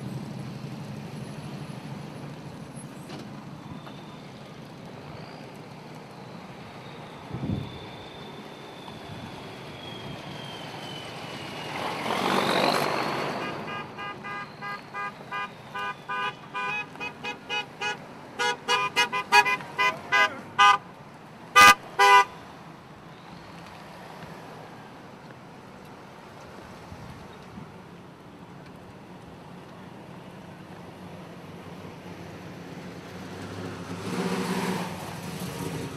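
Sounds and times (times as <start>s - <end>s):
faint siren wailing: 3.5s - 20.8s
vehicle passing by: 9.0s - 15.9s, 32.1s - 35.9s
vehicle horns honking: 13.4s - 20.9s, 21.5s - 22.4s.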